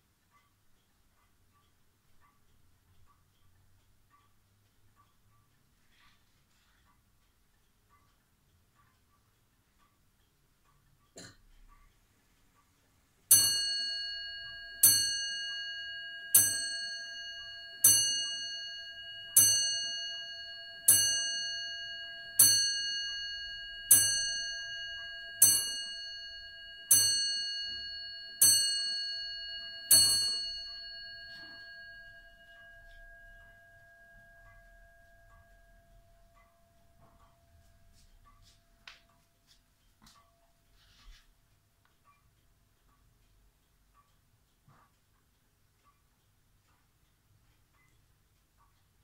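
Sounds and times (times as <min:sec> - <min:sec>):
faint clock ticking: 0:00.0 - 0:49.0
clock bell striking: 0:13.3 - 0:39.2.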